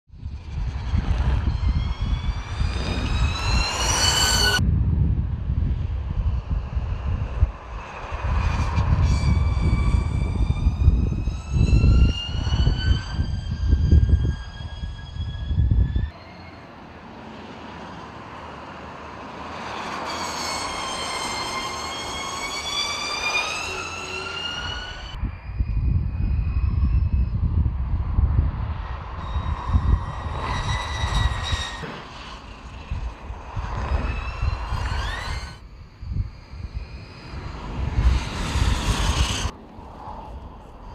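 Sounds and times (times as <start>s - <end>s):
rumble of tyres and wind: 0.0s - 40.9s
electric motor whine: 0.9s - 4.6s, 30.7s - 39.5s.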